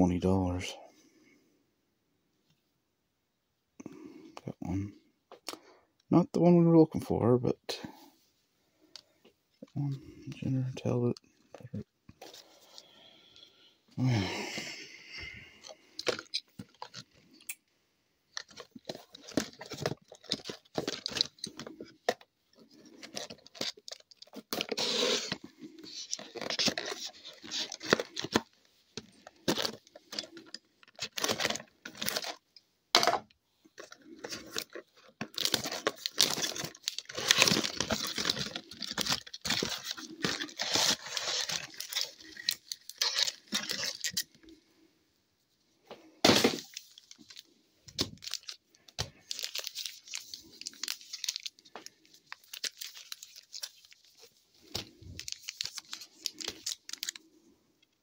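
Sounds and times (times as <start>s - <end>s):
plastic wrap tearing: 23.0s - 28.5s, 34.4s - 44.3s, 48.1s - 48.6s, 49.2s - 54.1s, 54.7s - 57.2s.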